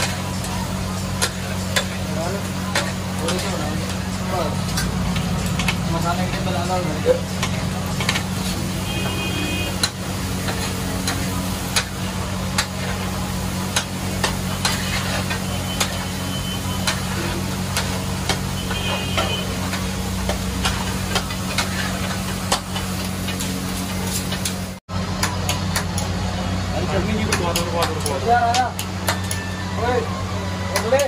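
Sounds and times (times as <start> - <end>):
faint sizzle: 0.0 - 24.8
metal spatulas clacking on griddle: 1.2 - 2.0, 13.7 - 16.0, 16.8 - 17.1, 27.2 - 29.4.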